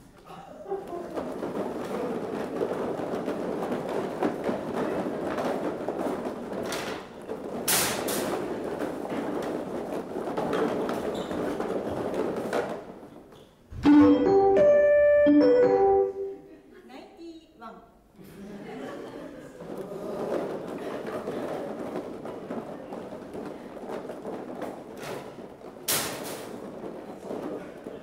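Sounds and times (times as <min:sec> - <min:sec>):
knocks and rattling: 0:01.0 - 0:14.2
keyboard held chords: 0:13.8 - 0:16.4.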